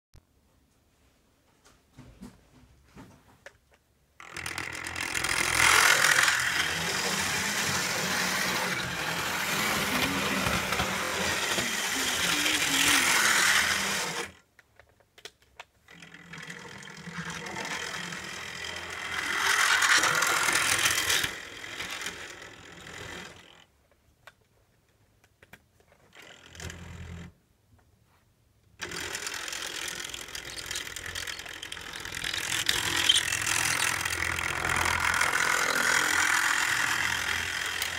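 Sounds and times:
model train motor whirring: 0:04.2 - 0:14.4, 0:15.9 - 0:23.7, 0:26.1 - 0:27.3, 0:28.8 - 0:37.9
wheels rattling over track joints: 0:28.8 - 0:37.9.

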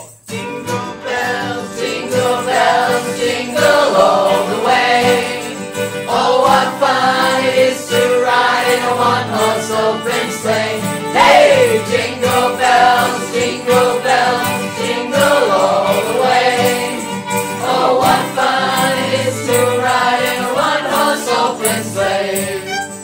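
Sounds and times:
acoustic guitars strummed: 0:00.0 - 0:23.0
group singing: 0:00.3 - 0:22.8
violin playing: 0:04.2 - 0:23.0.

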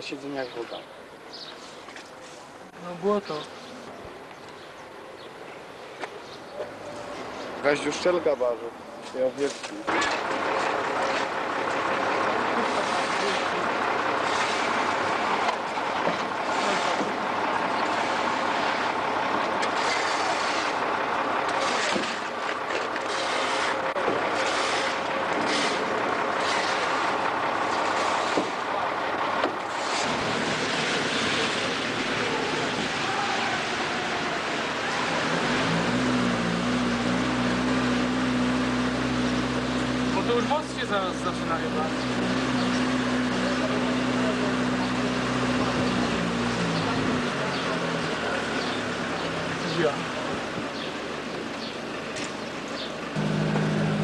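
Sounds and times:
truck engine running: 0:09.9 - 0:54.0
shovels scraping mud off cobblestones: 0:12.6 - 0:13.6, 0:14.2 - 0:14.9, 0:16.4 - 0:17.2, 0:19.6 - 0:20.8, 0:21.5 - 0:28.5.

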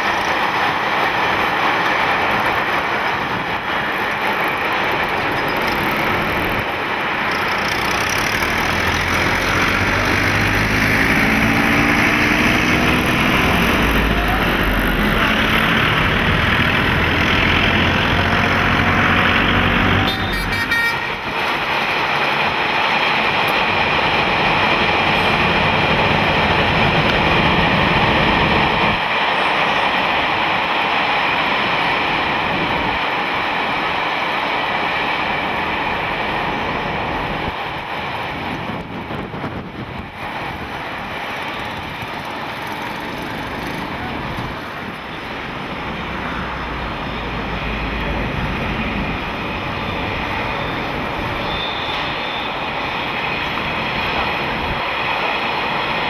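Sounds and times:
urban traffic noise: 0:00.0 - 0:56.0
engine rising in pitch: 0:07.3 - 0:20.2.

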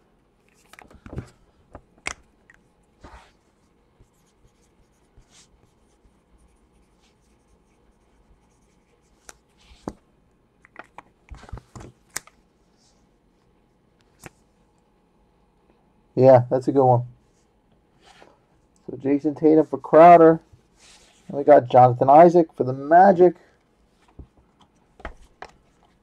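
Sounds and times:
cards rustling and sliding: 0:00.5 - 0:02.2, 0:10.8 - 0:12.4.

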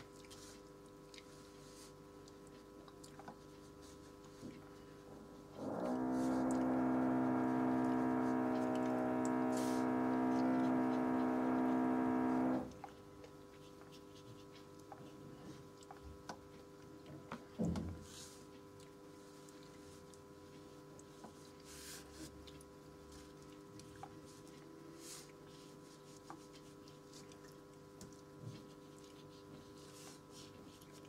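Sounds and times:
compressor motor humming: 0:05.5 - 0:12.8.

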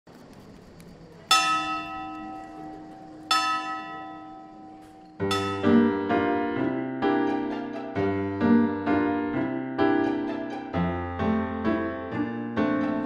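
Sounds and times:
large bell ringing: 0:01.3 - 0:06.6
piano music: 0:01.3 - 0:13.0.

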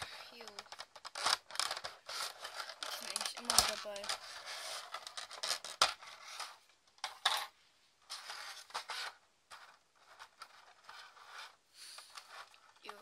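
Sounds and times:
plastic packaging crinkling: 0:00.0 - 0:06.0
plastic parts clicking and clattering: 0:00.0 - 0:13.0.

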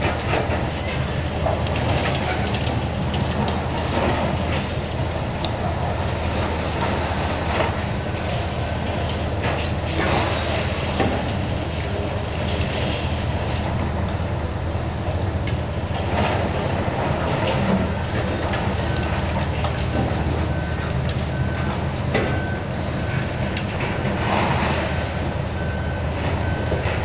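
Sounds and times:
diesel excavators running: 0:00.0 - 0:27.0
reversing alarm beeps: 0:20.0 - 0:27.0.

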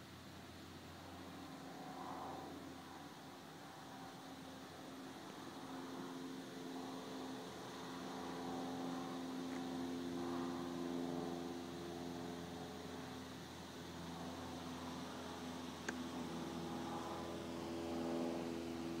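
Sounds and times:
distant airplane droning: 0:00.0 - 0:19.0.

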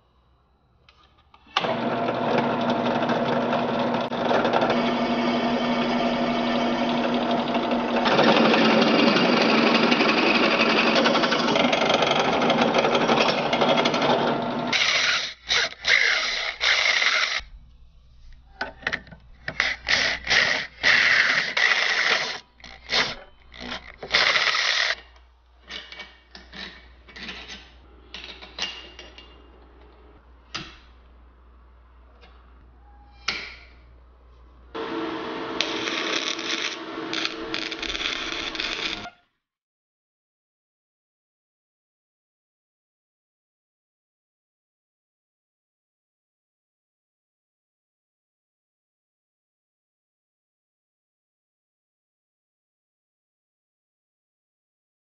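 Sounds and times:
drill press drilling into steel: 0:34.8 - 0:39.0.

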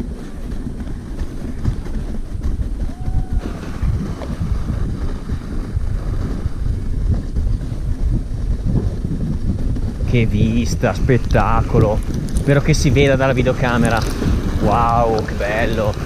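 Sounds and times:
sled runners scraping on snow: 0:00.0 - 0:16.0
wind buffeting microphone: 0:00.0 - 0:16.0.

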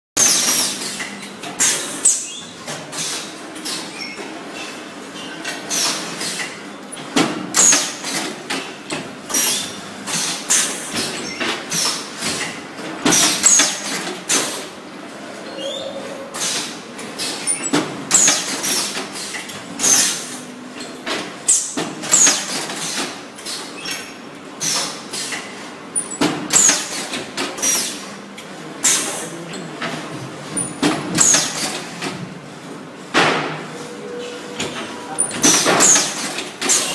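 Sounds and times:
machine heads and tray clacking: 0:24.6 - 0:36.9.

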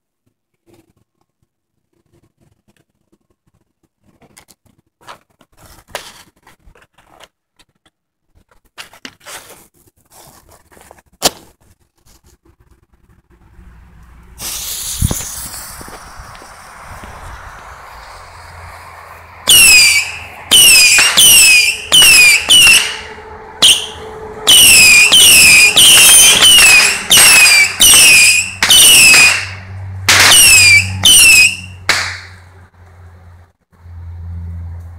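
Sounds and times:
firework whistles falling in pitch: 0:19.4 - 0:32.2.

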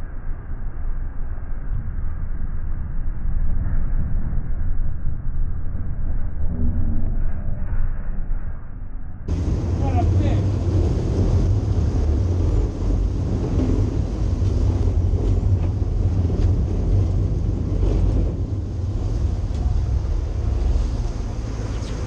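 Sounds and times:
boat engine rumble: 0:09.3 - 0:22.0
water churning behind boat: 0:09.3 - 0:22.0
wind buffeting microphone: 0:09.3 - 0:22.0.

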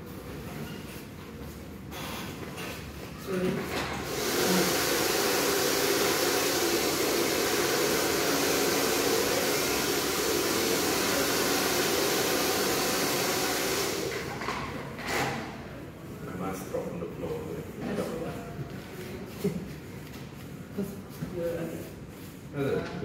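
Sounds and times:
hair dryer blowing: 0:04.0 - 0:14.4.

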